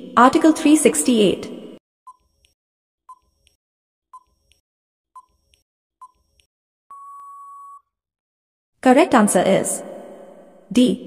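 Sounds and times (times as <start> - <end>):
long steady beep: 6.9 - 7.9
short beeps: 6.9 - 7.9.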